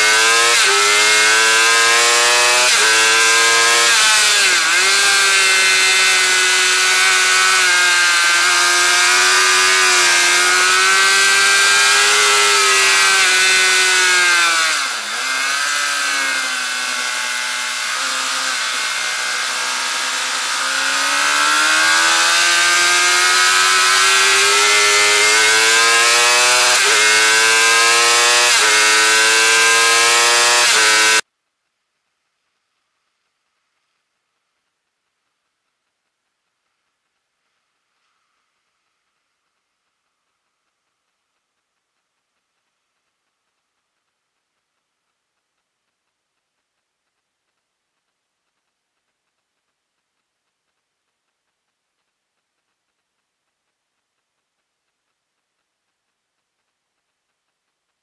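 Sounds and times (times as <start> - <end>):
motorcycle engine at high revs: 0.0 - 31.2.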